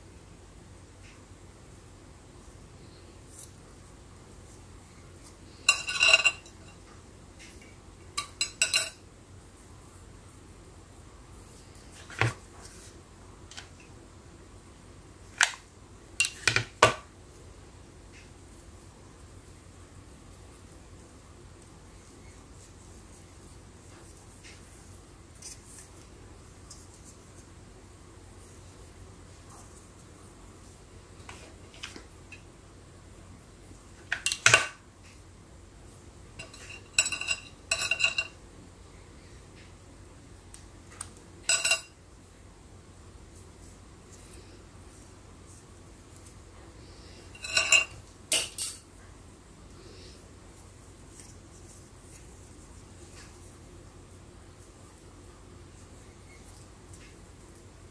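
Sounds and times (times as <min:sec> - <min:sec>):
kitchen items clinking and rattling: 0:05.7 - 0:06.8, 0:36.4 - 0:38.4, 0:41.5 - 0:41.9, 0:47.4 - 0:48.9.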